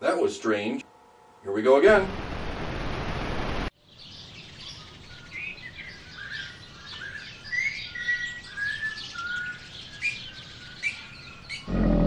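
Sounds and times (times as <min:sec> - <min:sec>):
faint outdoor background: 0:00.0 - 0:12.0
loud hiss of noise: 0:02.0 - 0:03.7
birds chirping: 0:03.8 - 0:12.0.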